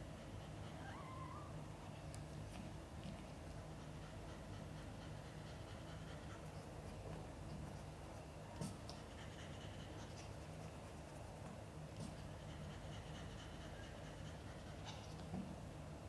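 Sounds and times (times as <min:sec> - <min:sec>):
cat panting: 0:00.0 - 0:00.9, 0:02.1 - 0:15.4.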